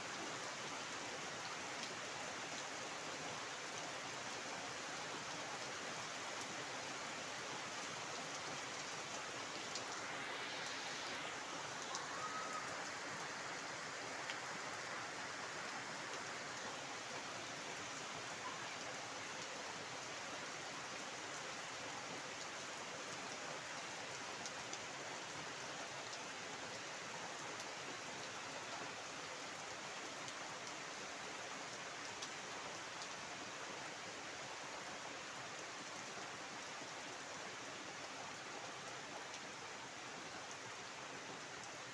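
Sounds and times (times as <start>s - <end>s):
heavy rain hissing: 6.0s - 19.2s
raindrops splashing in water: 8.3s - 14.6s.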